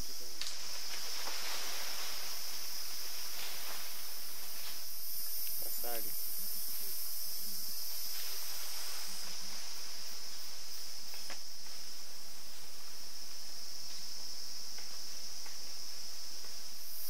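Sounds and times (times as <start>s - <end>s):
high hiss: 0.0s - 17.0s
insects chorus: 0.0s - 17.0s
faint rustles or clicks: 0.4s - 5.6s.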